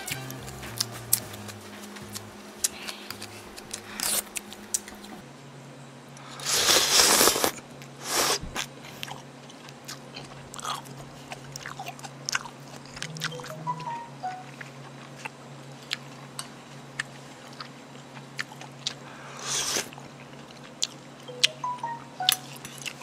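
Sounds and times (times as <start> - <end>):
chewing: 0.1 - 5.2, 8.5 - 21.6, 22.3 - 23.0
loud noodle slurp: 6.4 - 8.6, 19.4 - 19.9.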